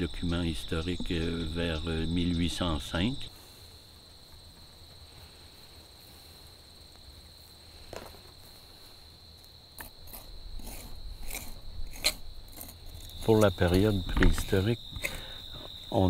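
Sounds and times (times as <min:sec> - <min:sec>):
crickets chirping: 0:00.0 - 0:16.0
metal trowel scraping soil: 0:09.8 - 0:15.3.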